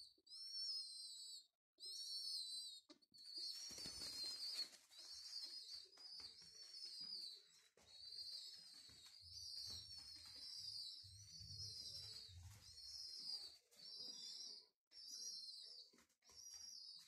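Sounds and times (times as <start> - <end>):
wings flapping: 3.5 - 7.2.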